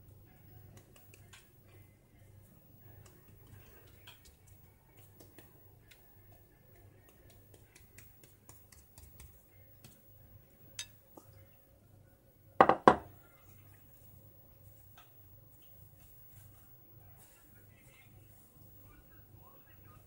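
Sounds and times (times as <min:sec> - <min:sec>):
glass bowl knocking: 0:12.6 - 0:13.1.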